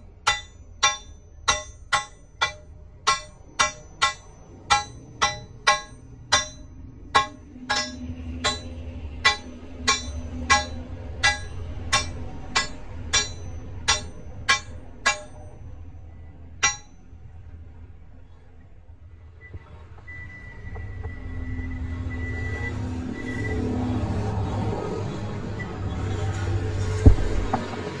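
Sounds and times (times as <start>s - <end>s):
hammer striking steel nut: 0.3s - 6.6s, 7.2s - 15.4s, 16.6s - 17.0s, 27.0s - 27.8s.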